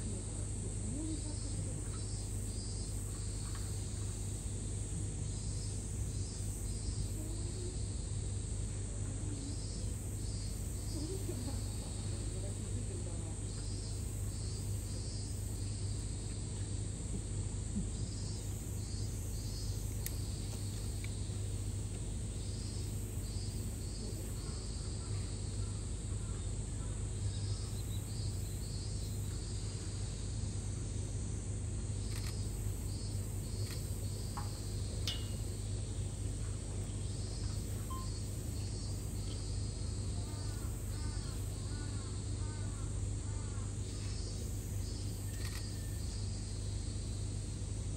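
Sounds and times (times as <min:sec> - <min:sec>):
insects calling in pulses: 0:00.0 - 0:47.9
steady low hum: 0:00.0 - 0:47.9
faint chirps: 0:09.0 - 0:16.4, 0:17.9 - 0:30.0, 0:32.0 - 0:46.7.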